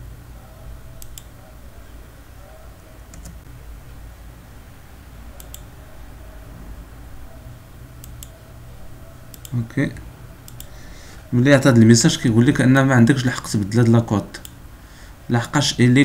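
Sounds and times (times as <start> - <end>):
steady low hum: 0.0 - 16.0
computer mouse clicks: 1.0 - 1.4, 3.1 - 3.5, 5.4 - 5.7, 8.0 - 8.4, 9.3 - 9.6, 10.4 - 10.8.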